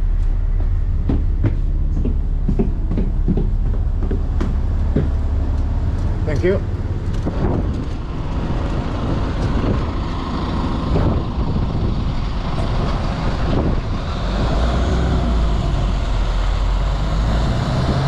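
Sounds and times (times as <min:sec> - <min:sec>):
bus engine rumble: 0:00.0 - 0:18.0
knocks and rattles: 0:00.5 - 0:10.0.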